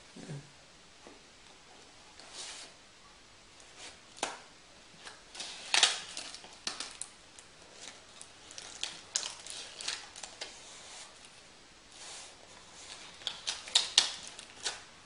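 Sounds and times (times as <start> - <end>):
paper and cardboard rustling: 5.0 - 14.9.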